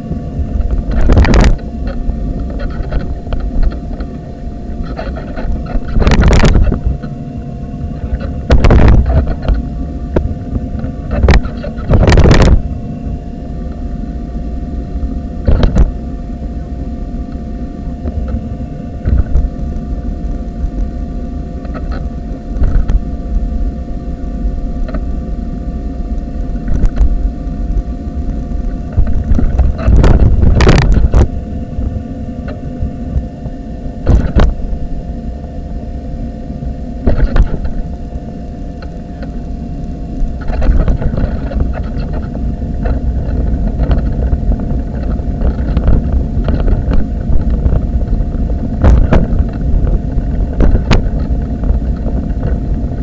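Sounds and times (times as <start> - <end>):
constant hum: 0.0 - 53.0
wheelchair wheels rumbling on tarmac: 37.1 - 53.0.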